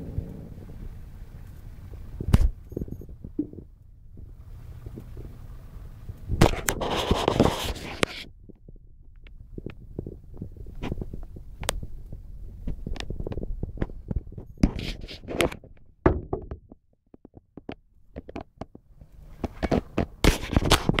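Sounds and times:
irregular knocks and thumps: 0.0 - 5.5, 6.1 - 21.0
low rumble: 0.0 - 6.9, 7.7 - 15.0.

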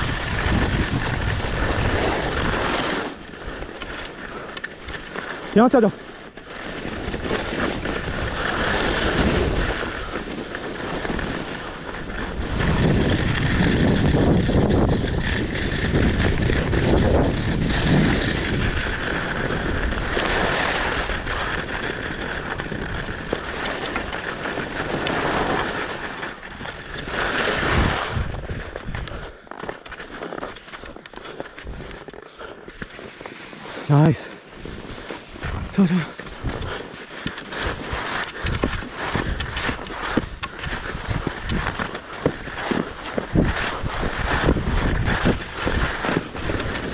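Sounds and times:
wind buffeting microphone: 0.0 - 2.6, 11.0 - 25.4, 26.6 - 29.3, 34.6 - 46.9
skis sliding on snow: 0.0 - 46.9.

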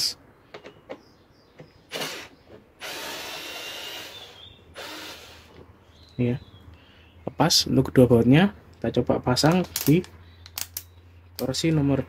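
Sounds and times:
cordless screwdriver whining: 1.9 - 5.6.

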